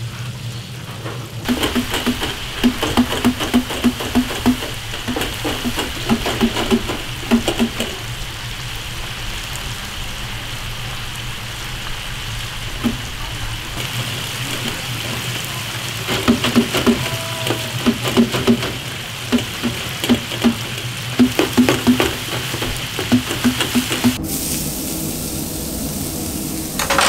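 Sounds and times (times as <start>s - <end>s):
hot oil bubbling and crackling: 0.0s - 27.0s
low hum: 23.1s - 27.0s.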